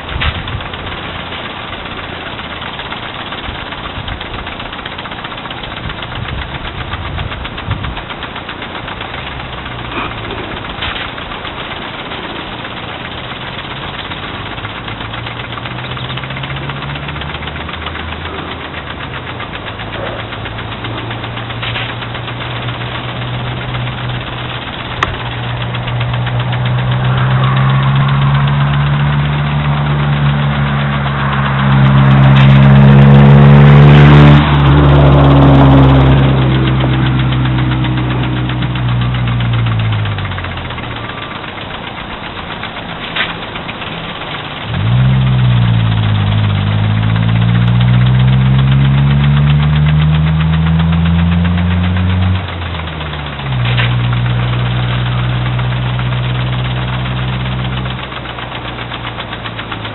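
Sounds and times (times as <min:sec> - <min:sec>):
motor droning: 0:00.0 - 0:59.9
motor starting up: 0:00.0 - 0:59.9.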